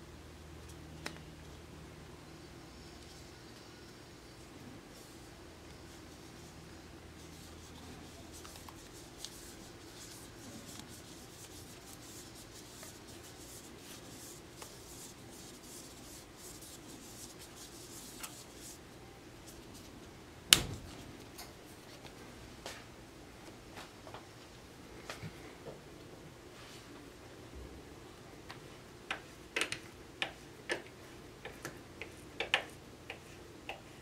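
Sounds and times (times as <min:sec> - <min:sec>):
tape rubbing with small ticks: 0:07.3 - 0:18.8.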